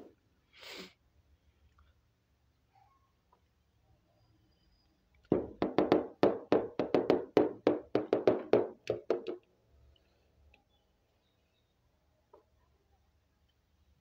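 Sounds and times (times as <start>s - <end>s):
plastic toy tapping on tabletop: 5.3s - 9.4s.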